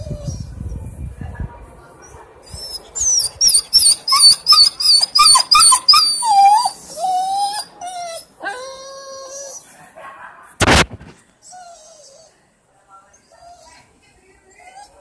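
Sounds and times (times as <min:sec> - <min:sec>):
dog yelping and whining: 0:02.4 - 0:09.7, 0:11.4 - 0:12.4, 0:14.6 - 0:15.0.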